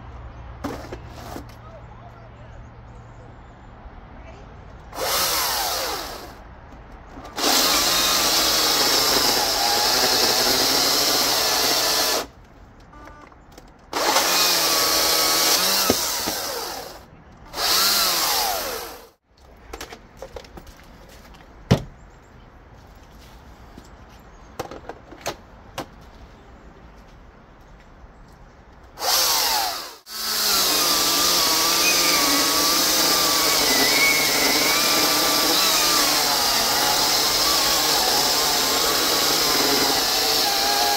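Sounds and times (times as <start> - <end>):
battery chainsaw cutting wood: 5.0 - 6.4, 7.3 - 12.3, 13.9 - 19.2, 29.0 - 40.9.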